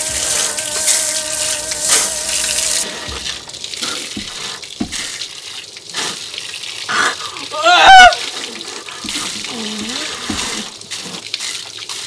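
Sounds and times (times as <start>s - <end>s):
wavering tone: 0.0s - 3.6s
hose spraying water jet: 0.0s - 12.0s.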